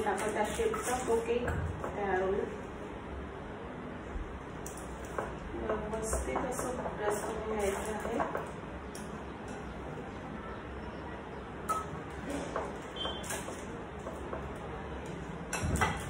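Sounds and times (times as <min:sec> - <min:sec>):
dishes and utensils clinking: 0:11.7 - 0:14.6, 0:15.5 - 0:16.0.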